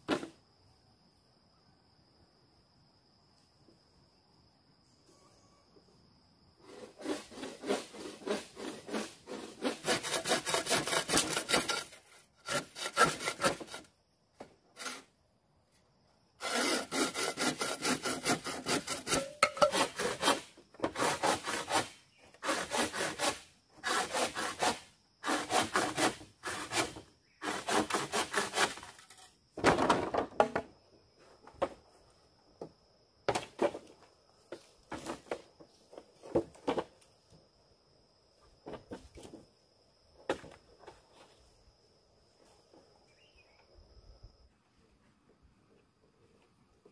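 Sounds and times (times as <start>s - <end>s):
saw cutting bamboo: 6.6s - 13.9s, 14.8s - 15.1s, 16.4s - 29.3s.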